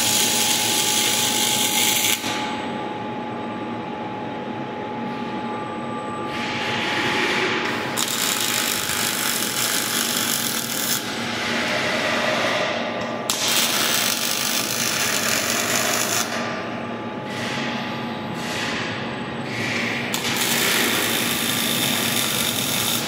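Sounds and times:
welding arc crackling and hissing: 0.0s - 2.3s, 8.0s - 11.1s, 13.3s - 16.4s, 20.1s - 23.0s
low machine hum: 0.0s - 23.0s.

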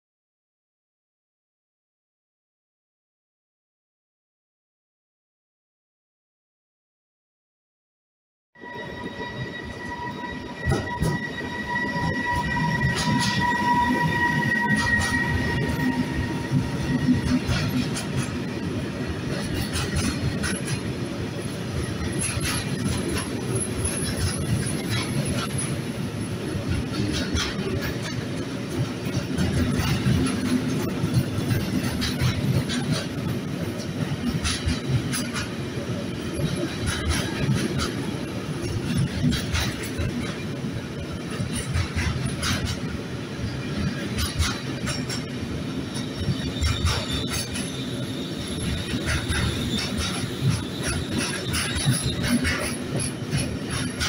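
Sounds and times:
high-pitched wheel screeches: 8.6s - 17.0s
thin steady squeal: 8.6s - 17.0s
train wheels rumbling on rails: 8.6s - 54.0s
wheels and couplings clanking: 10.6s - 54.0s.

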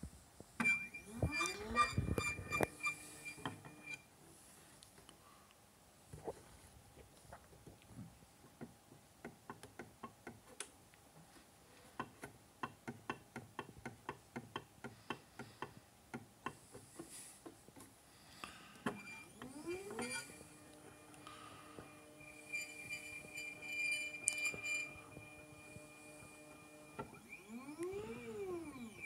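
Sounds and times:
motor lead screw squeal: 0.6s - 4.0s, 18.9s - 29.0s.

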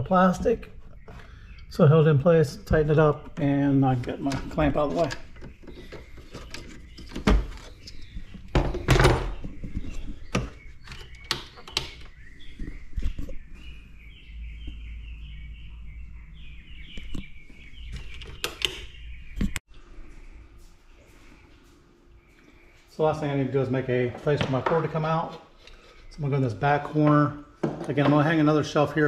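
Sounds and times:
objects knocking and clunking: 3.2s - 13.4s, 27.0s - 28.4s.

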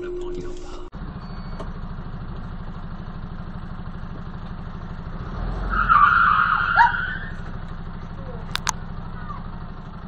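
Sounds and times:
vehicle rumble from inside cab: 0.0s - 10.0s
high squeal of brakes: 0.6s - 1.8s, 5.7s - 7.5s.

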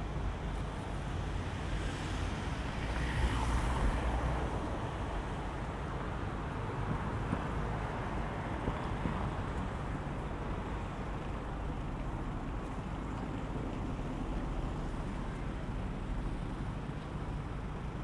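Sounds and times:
vehicle engines idling: 5.3s - 18.0s.

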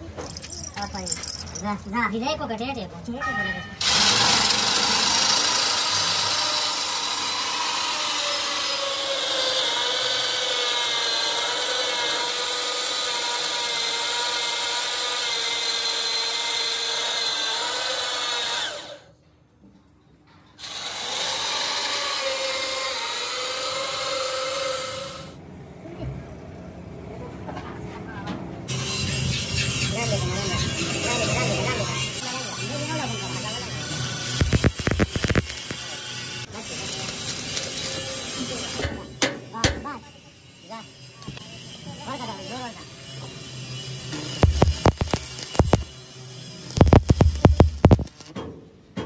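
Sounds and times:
electric power tool whining: 3.8s - 10.4s, 33.9s - 36.0s, 44.1s - 45.9s, 46.6s - 48.3s.

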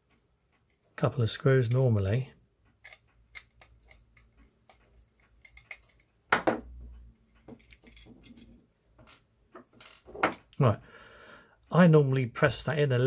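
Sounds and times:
screwdriver removing small screws: 2.8s - 6.1s.

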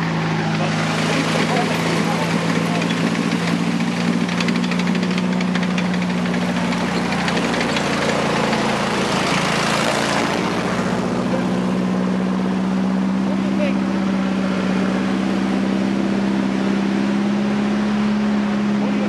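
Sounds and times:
tank engine drone: 0.0s - 19.0s
steel tracks clattering: 0.6s - 10.2s.

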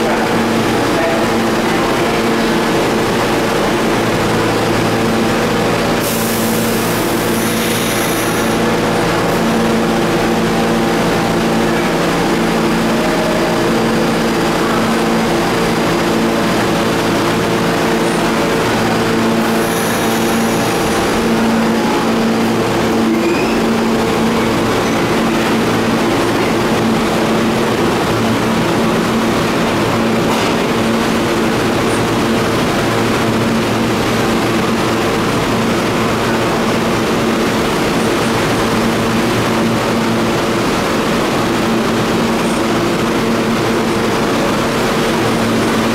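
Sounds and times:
steady multi-tone hum: 0.0s - 45.9s
subway train pulling out: 0.0s - 45.9s.

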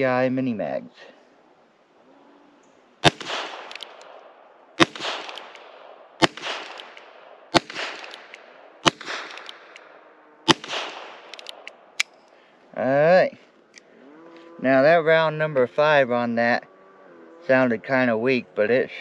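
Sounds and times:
revolver shots echoing: 3.0s - 11.6s.

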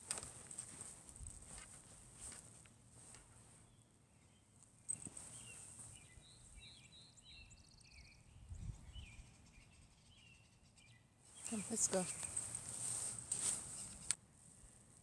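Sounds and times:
distant birds chirping: 3.2s - 14.2s.

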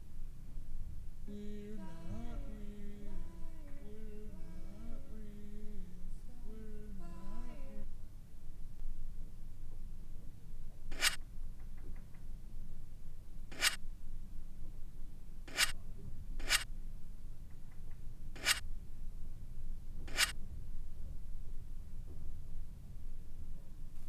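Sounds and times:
low steady rumble: 0.0s - 24.0s
scratchy swishes: 10.9s - 11.2s.

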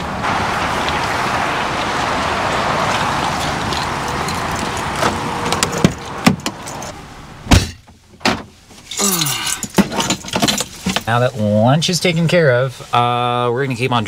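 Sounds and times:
vehicle running: 0.0s - 7.5s.

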